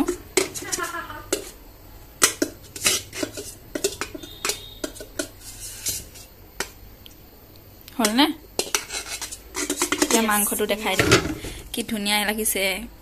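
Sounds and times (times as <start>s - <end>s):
steel spoon scraping and clinking: 2.2s - 6.7s, 8.6s - 10.5s.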